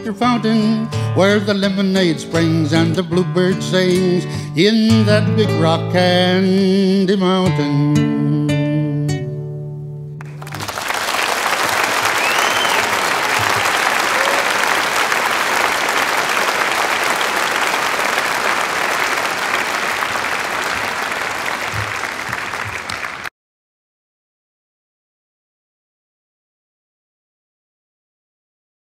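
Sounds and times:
large crowd applauding: 10.2 - 23.3.

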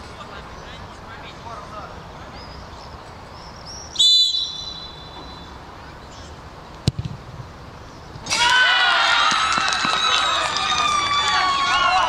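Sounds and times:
low background noise: 0.0 - 12.0
referee's whistle blast: 4.0 - 5.5.

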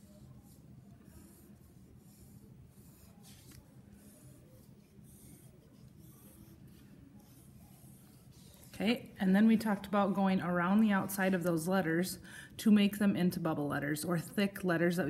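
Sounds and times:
pencil scratching on paper: 0.0 - 9.2
low steady hum: 0.0 - 15.0.

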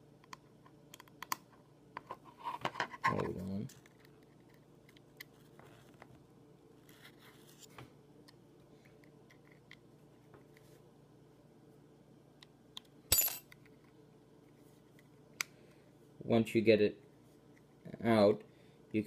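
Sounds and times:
sharp metallic clink: 13.1 - 13.4.

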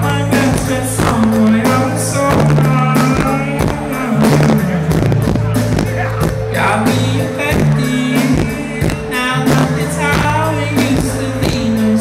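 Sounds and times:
drum hits: 0.0 - 12.0
electric guitar: 0.0 - 12.0
keyboards: 0.0 - 12.0
man singing: 0.0 - 12.0
sustained bass notes: 0.0 - 12.0.

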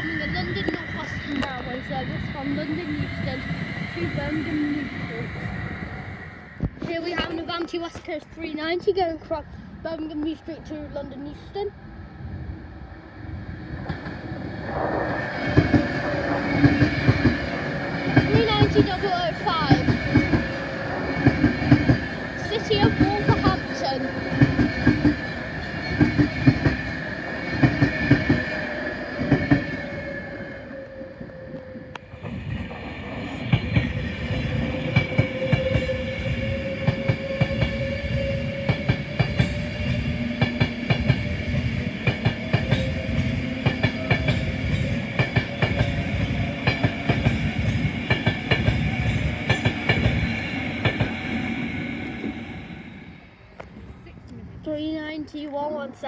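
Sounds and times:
electric train whine: 0.0 - 54.6
train wheels clicking on rail joints: 13.8 - 30.2, 31.5 - 52.4.

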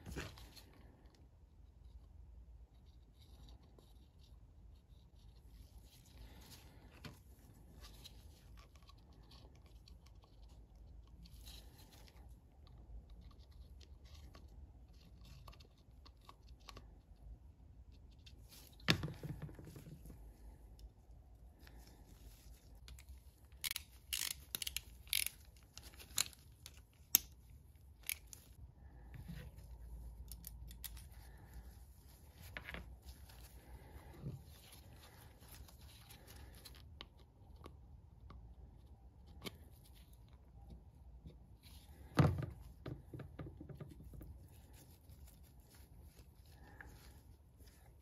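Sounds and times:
gloved hands rustling: 5.3 - 15.2, 18.0 - 37.4, 41.4 - 48.0
small metal parts clicking: 22.9 - 28.6.

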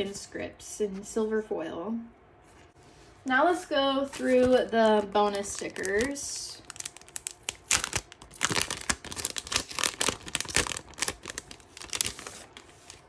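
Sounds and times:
plastic sleeve crinkling: 4.1 - 13.0.

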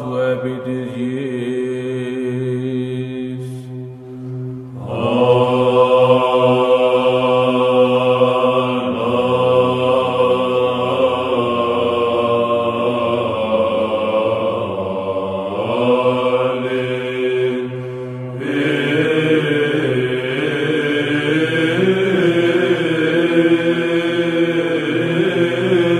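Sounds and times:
held drone note: 1.1 - 13.2
men's choir chanting: 4.8 - 25.9.

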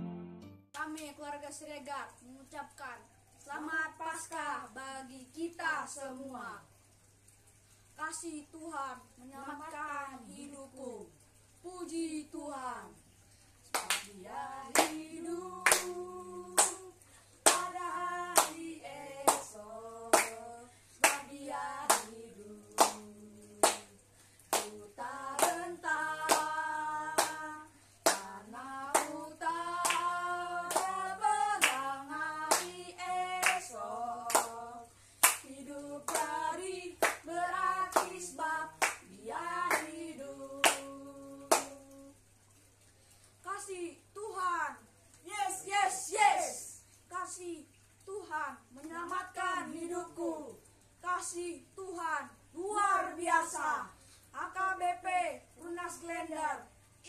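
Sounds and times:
hand claps: 13.7 - 14.1, 14.7 - 15.0, 15.6 - 15.9, 16.6 - 16.8, 17.5 - 17.7, 18.4 - 18.6, 19.2 - 19.5, 20.1 - 20.4, 21.0 - 21.3, 21.9 - 22.1, 22.8 - 23.0, 23.6 - 23.9, 24.5 - 24.8, 25.4 - 25.6, 26.2 - 26.5, 27.1 - 27.4, 28.0 - 28.3, 28.9 - 29.2, 29.8 - 30.1, 30.7 - 31.0, 31.6 - 31.9, 32.5 - 32.8, 33.4 - 33.7, 34.3 - 34.5, 35.2 - 35.5, 36.1 - 36.4, 37.0 - 37.2, 37.9 - 38.2, 38.8 - 39.1, 39.7 - 40.0, 40.6 - 40.9, 41.5 - 41.8
person singing unaccompanied: 13.8 - 42.3, 48.1 - 56.7.

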